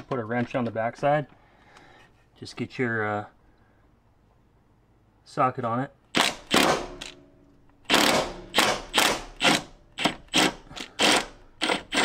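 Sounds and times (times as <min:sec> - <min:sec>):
impact wrench hammering: 0:06.2 - 0:07.2, 0:07.9 - 0:12.0.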